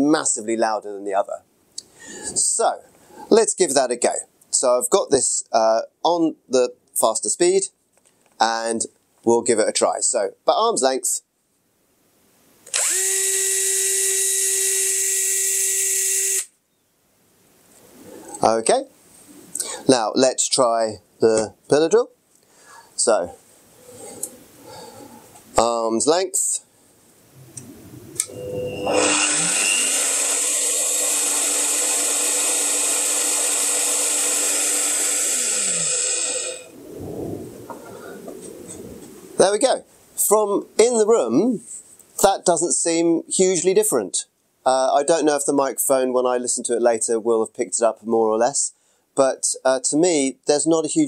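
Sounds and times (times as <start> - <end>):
electric drill whining: 12.7 - 16.5, 28.2 - 36.8.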